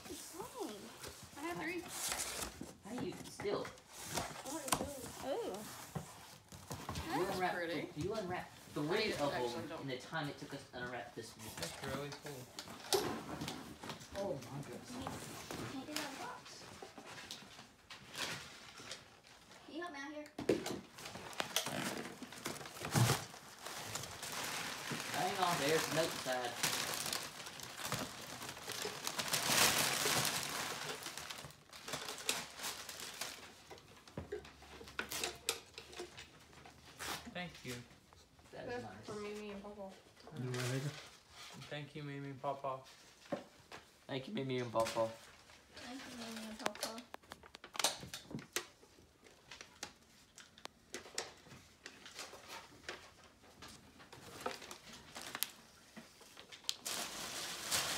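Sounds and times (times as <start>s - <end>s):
paper and cloth rustling: 0.0s - 7.6s, 11.3s - 19.7s, 20.9s - 34.1s, 44.7s - 47.9s
wrapping paper crinkling: 21.0s - 33.9s, 49.3s - 57.9s.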